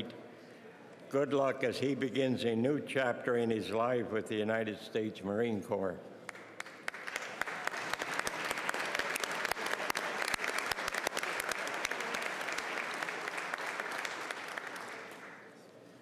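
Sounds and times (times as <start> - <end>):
crowd applauding: 6.3 - 15.6.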